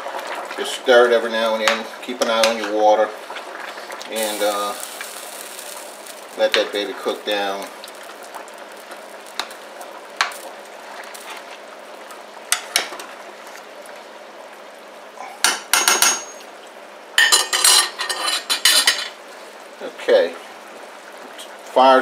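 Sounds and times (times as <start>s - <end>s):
simmering pot hissing: 0.0s - 22.0s
metal spoon scraping a pot: 17.4s - 19.0s.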